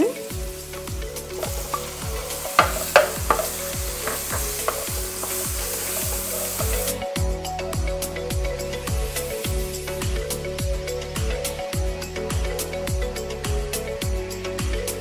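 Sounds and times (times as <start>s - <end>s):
meat sizzling in butter: 0.2s - 7.0s
spatula stirring in a wok: 0.8s - 7.0s.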